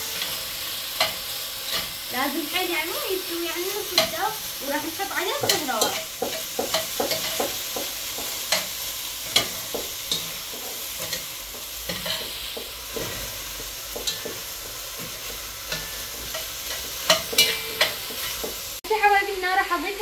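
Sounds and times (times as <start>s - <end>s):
chicken sizzling in a pot: 0.0s - 20.0s
metal spoon scraping a pot: 15.7s - 18.5s.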